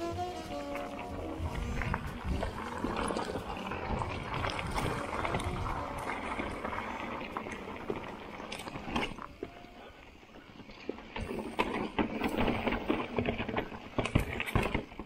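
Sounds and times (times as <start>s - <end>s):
wind on microphone: 0.0s - 8.6s
bike rattling: 0.0s - 15.0s
tyres crunching on stones: 0.0s - 15.0s.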